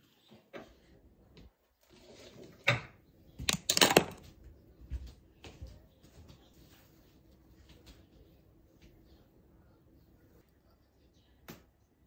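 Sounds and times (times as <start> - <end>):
sharp knocks and clatters: 3.4 - 4.3.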